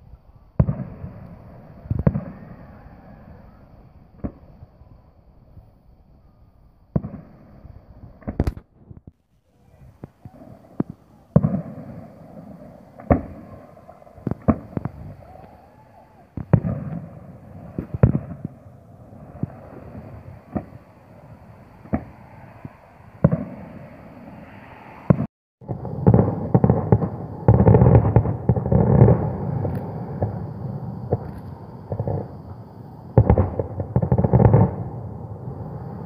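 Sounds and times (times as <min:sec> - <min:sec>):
sharp pops and thumps: 0:08.2 - 0:09.2
low rumbling noise: 0:09.6 - 0:36.0.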